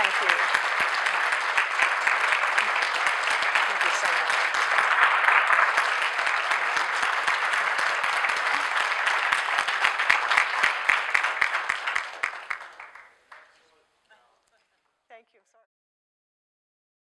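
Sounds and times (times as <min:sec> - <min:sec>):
audience applauding: 0:00.0 - 0:13.8.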